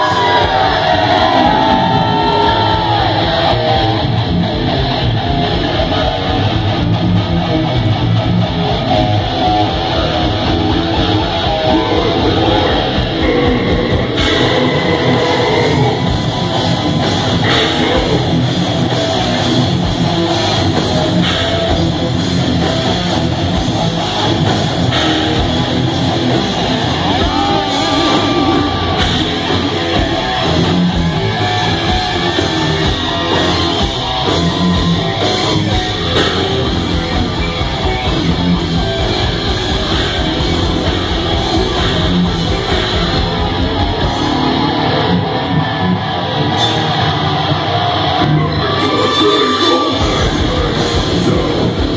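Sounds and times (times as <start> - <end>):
heavy metal band playing live: 0.0 - 51.9.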